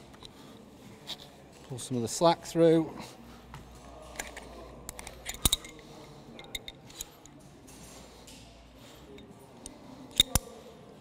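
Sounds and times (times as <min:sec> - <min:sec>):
metal hardware clicking: 0:04.2 - 0:05.8, 0:06.4 - 0:07.4, 0:10.1 - 0:10.5.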